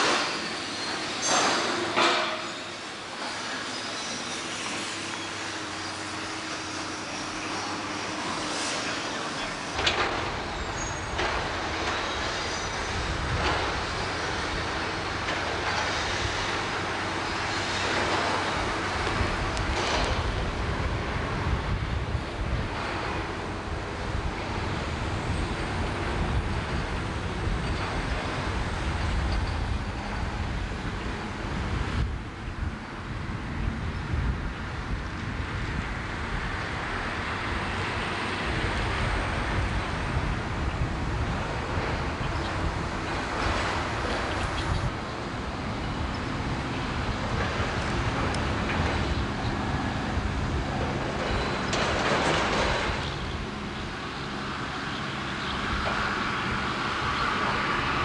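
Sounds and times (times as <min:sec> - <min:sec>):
vehicle rumbling: 0:00.0 - 0:58.0
wind buffeting microphone: 0:09.8 - 0:58.0.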